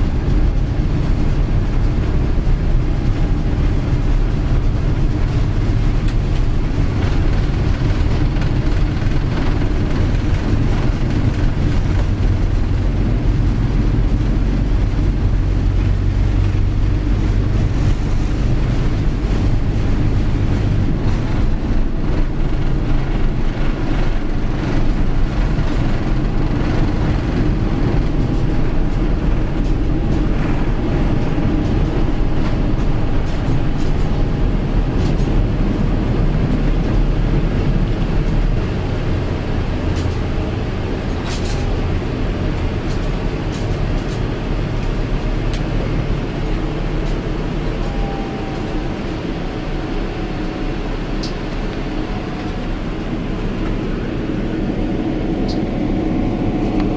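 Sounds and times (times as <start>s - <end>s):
jet engine roar in cabin: 0.0s - 56.9s.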